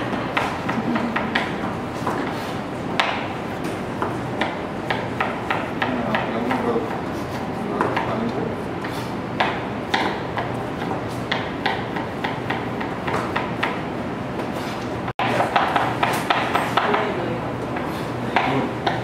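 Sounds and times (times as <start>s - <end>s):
knife chopping potato on board: 0.1s - 8.2s, 8.8s - 13.8s, 14.4s - 17.0s, 17.8s - 19.0s.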